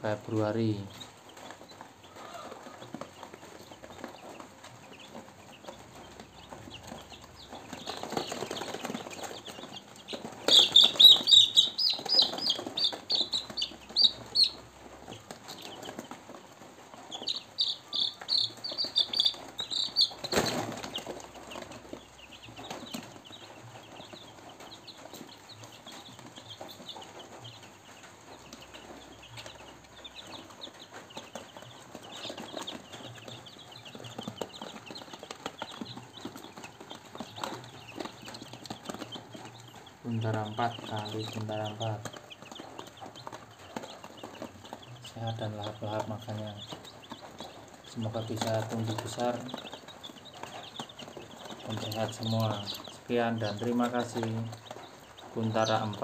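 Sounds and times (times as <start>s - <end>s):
chicks peeping softly: 0.0s - 56.0s
rustling and fluttering: 0.3s - 56.0s
chick distress peeps: 2.0s - 3.1s.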